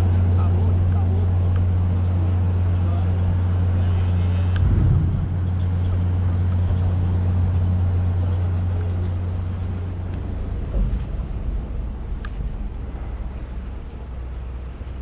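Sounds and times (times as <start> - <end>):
engine idling: 0.2 - 10.7.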